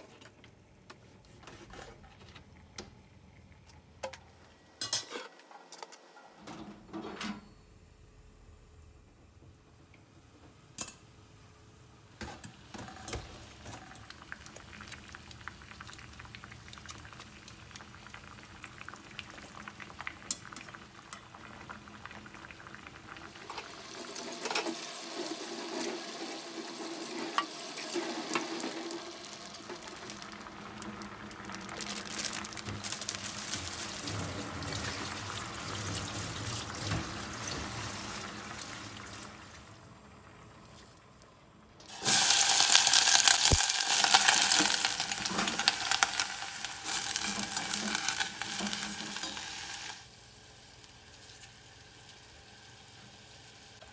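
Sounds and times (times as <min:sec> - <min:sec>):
pot bubbling at the boil: 0:12.2 - 0:53.9.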